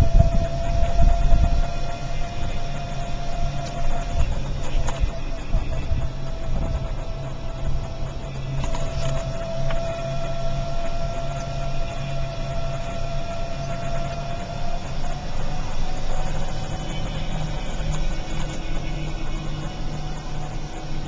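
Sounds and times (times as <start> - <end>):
thin steady whine: 0.0 - 21.0
vehicle engine low rumble: 0.0 - 21.0.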